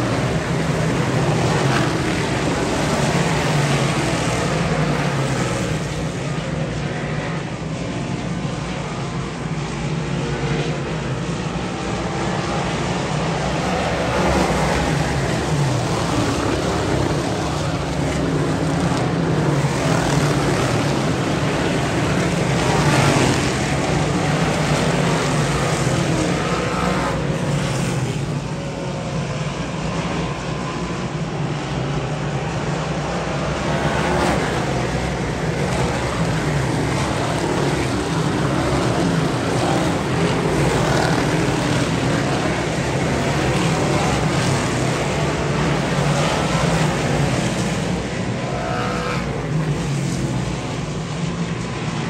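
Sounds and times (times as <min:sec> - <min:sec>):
race car engines passing: 0:00.0 - 0:52.0.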